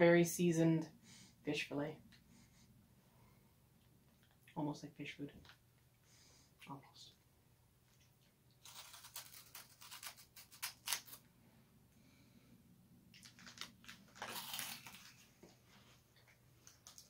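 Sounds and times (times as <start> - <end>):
plastic wrapper crinkling and tearing: 8.6 - 11.2, 13.1 - 15.3, 16.6 - 17.0.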